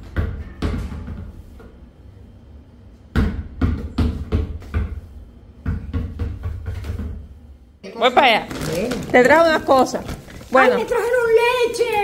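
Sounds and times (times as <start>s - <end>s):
basketball bouncing on tiled floor: 0.0s - 1.7s, 3.1s - 7.3s.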